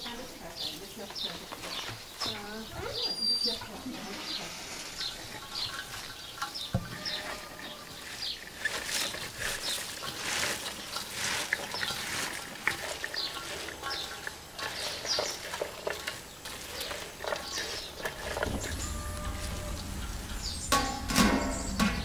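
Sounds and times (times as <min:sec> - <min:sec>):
hands squeezing shredded vegetables: 0:07.2 - 0:18.5.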